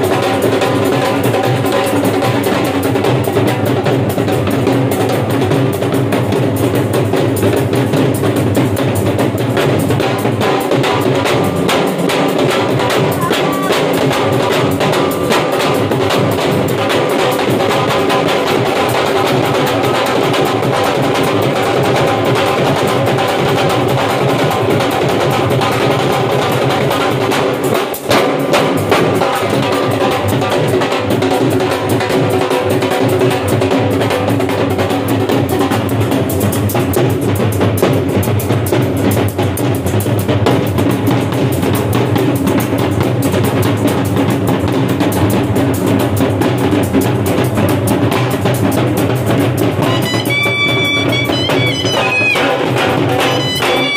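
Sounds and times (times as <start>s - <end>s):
drums beaten with sticks: 0.0s - 53.9s.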